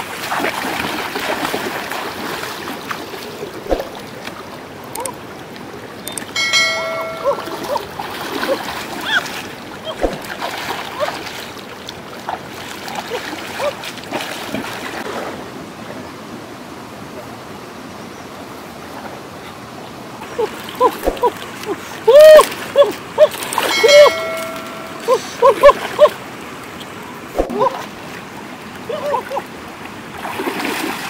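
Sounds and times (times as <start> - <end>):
water splashing and sloshing: 0.0 - 31.0.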